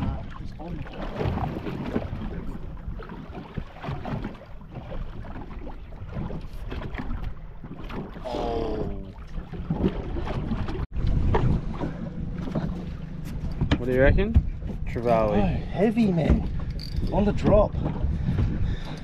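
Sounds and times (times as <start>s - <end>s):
small boat on water: 0.0s - 19.0s
wind buffeting microphone: 8.7s - 19.0s.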